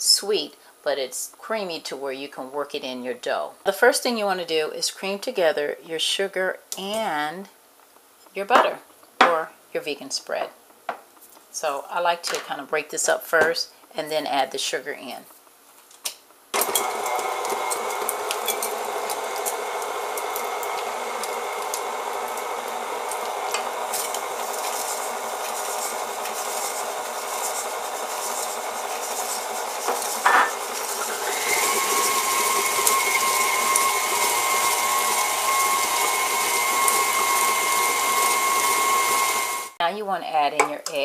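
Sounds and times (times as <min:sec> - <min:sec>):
electric mixer motor hum: 0:16.6 - 0:39.8.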